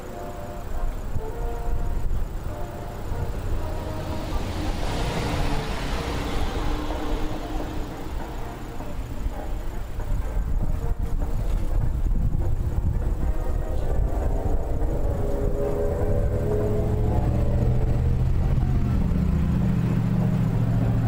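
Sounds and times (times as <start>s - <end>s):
car passing: 0.0s - 21.0s
steady low rumble: 0.0s - 21.0s.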